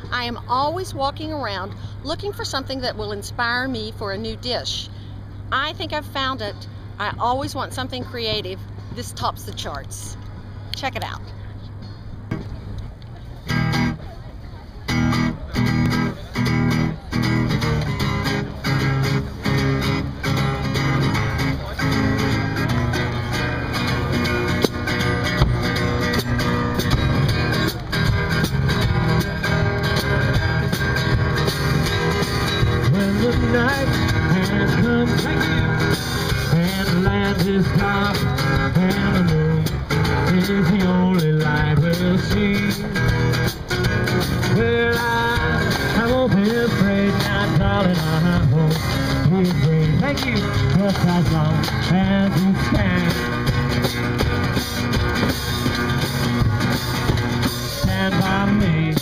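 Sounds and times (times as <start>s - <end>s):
strummed acoustic guitar chords: 13.4s - 14.1s, 14.8s - 59.0s
bending melody line: 15.0s - 59.0s.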